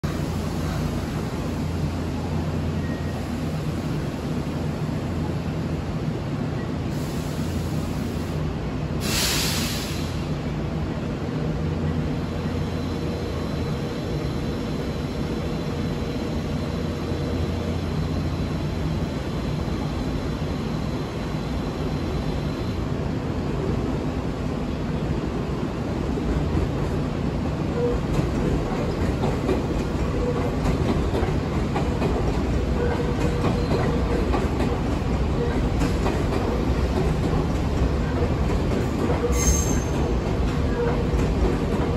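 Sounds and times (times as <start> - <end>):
burst of hiss: 9.0 - 10.3
train wheels rumbling: 22.2 - 41.9.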